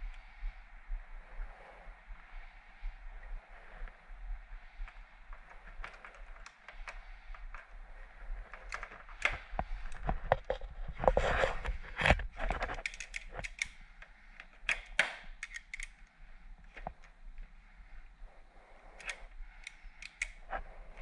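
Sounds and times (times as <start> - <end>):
hand tools clicking and tapping: 12.7 - 13.8, 14.4 - 15.9, 19.0 - 20.4.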